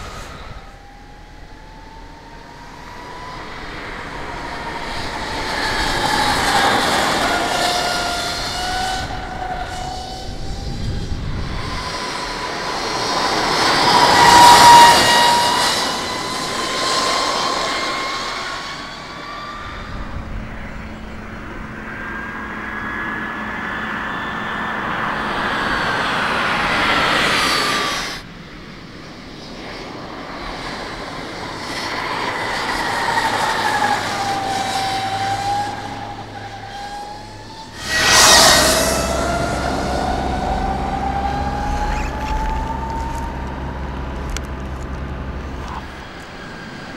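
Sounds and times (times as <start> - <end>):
electric motorcycle whine passing: 0.0 - 46.9
wind and tyres rushing: 0.0 - 46.9.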